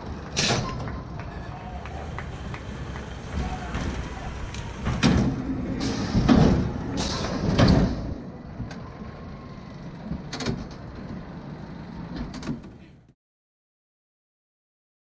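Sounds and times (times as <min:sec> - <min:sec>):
roller coaster wheels rumbling on track: 0:00.0 - 0:13.0
brake hissing bursts: 0:05.8 - 0:06.4, 0:07.0 - 0:08.1.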